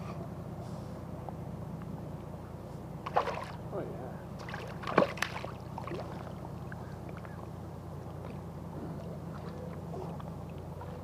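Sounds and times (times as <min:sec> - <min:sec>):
low hum: 0:00.0 - 0:11.0
fish splashing at water surface: 0:04.4 - 0:06.4.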